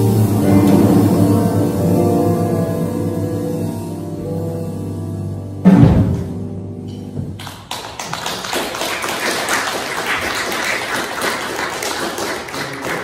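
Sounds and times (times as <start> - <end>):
piano guitar and bass chord: 0.0 - 7.7
audience applauding: 7.4 - 13.0.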